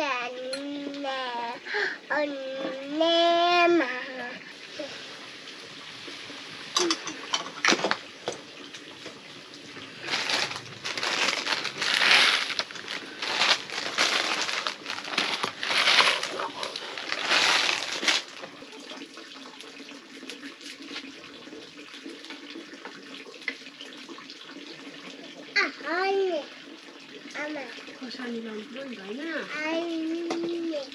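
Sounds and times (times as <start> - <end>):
wok hissing: 9.6 - 18.4.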